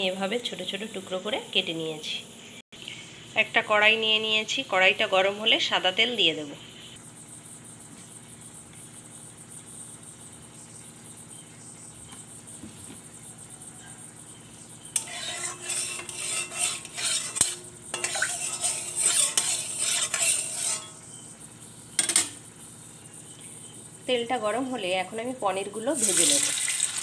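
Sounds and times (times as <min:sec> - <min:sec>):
metal utensil scraping pan: 0:14.8 - 0:21.3, 0:22.0 - 0:22.4
oil sizzling in pan: 0:15.0 - 0:21.1, 0:26.0 - 0:27.0.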